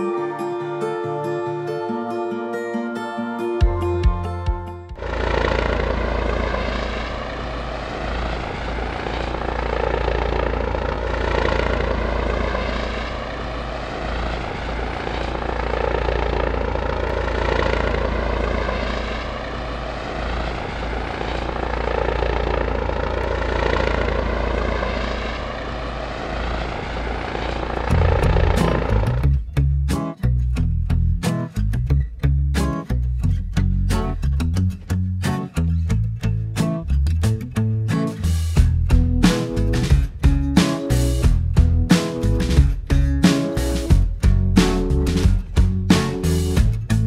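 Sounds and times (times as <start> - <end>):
guitar music: 0.0 - 7.1, 27.8 - 47.0
drone propellers buzzing: 4.9 - 29.4.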